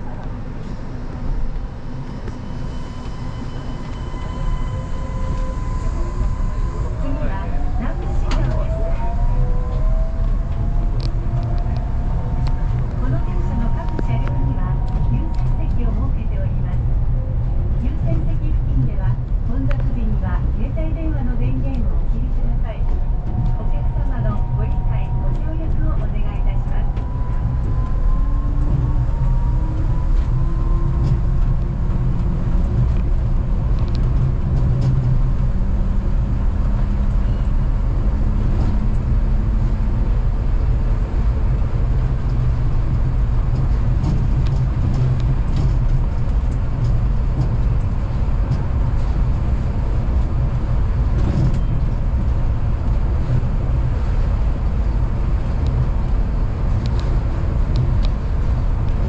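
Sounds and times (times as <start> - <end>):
train rumbling: 0.0 - 59.0
train motor whine: 1.6 - 15.7.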